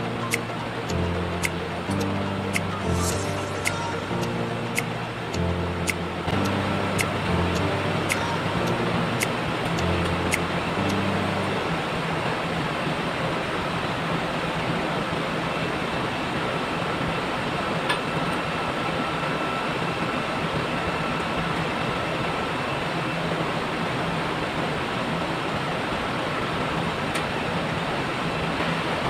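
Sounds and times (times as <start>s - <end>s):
low hum: 0.0s - 13.7s.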